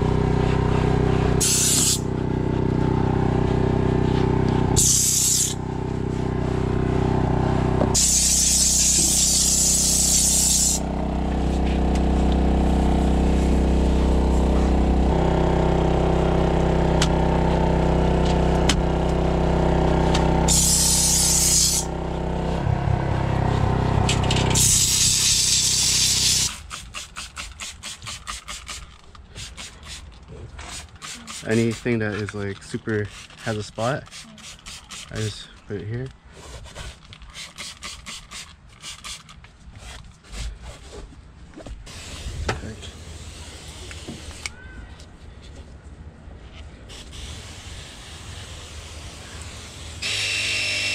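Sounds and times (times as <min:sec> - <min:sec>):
steady low hum: 0:00.0 - 0:26.5
spray bottle trigger pumps: 0:01.4 - 0:02.0, 0:04.8 - 0:05.6, 0:08.0 - 0:10.8, 0:20.5 - 0:21.9, 0:24.3 - 0:35.4, 0:36.6 - 0:39.4
steam cleaner hissing bursts: 0:01.4 - 0:02.0, 0:04.8 - 0:05.6, 0:08.0 - 0:10.8, 0:20.5 - 0:21.9, 0:24.6 - 0:28.6, 0:46.9 - 0:50.0.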